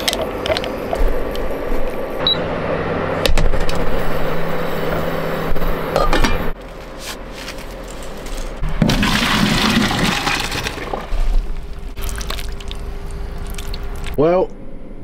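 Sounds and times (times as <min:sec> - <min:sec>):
water rushing through a colander: 0:08.8 - 0:14.2.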